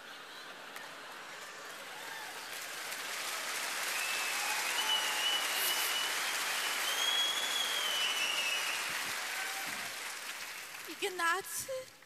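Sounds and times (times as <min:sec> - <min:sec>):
audience applauding: 0:00.0 - 0:11.6
high wavering whistle: 0:04.0 - 0:08.9.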